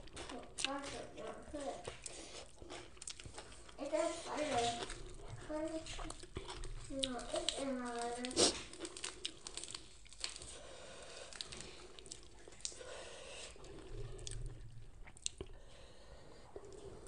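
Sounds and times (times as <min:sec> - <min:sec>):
soft chewing: 0:00.0 - 0:17.0
lettuce leaves crackling: 0:03.0 - 0:12.8.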